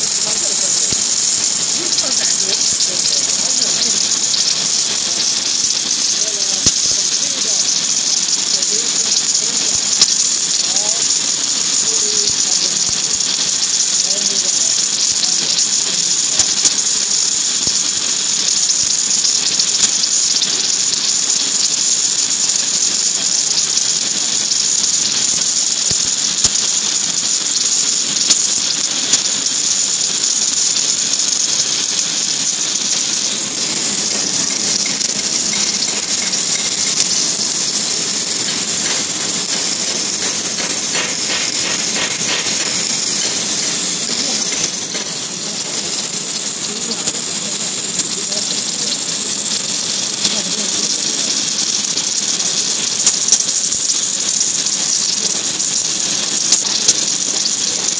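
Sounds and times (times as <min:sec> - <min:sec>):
welding hiss with crackling: 0:00.0 - 0:57.9.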